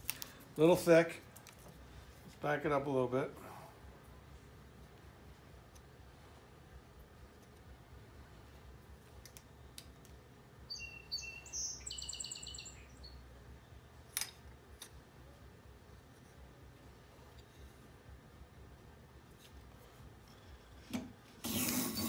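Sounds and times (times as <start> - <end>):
songbird chirping and trilling: 10.6 - 13.8.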